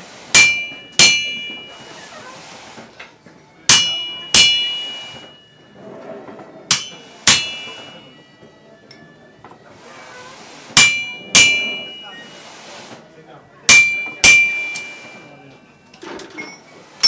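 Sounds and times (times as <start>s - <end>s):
hammer striking iron on anvil: 0.3s - 1.8s, 3.7s - 5.4s, 6.7s - 8.2s, 10.8s - 12.1s, 13.7s - 15.3s.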